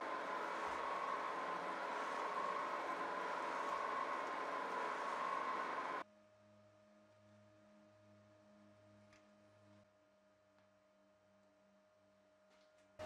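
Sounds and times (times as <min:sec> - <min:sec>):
lathe drilling steel with whine: 0:00.0 - 0:06.0
faint steady tone: 0:00.0 - 0:06.6
faint pulsing low hum: 0:00.0 - 0:09.0.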